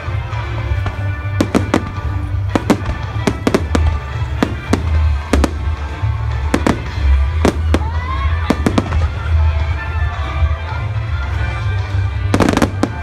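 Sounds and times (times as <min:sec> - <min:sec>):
music with sustained tones: 0:00.0 - 0:13.0
fireworks bursting: 0:00.4 - 0:09.4, 0:12.3 - 0:13.0.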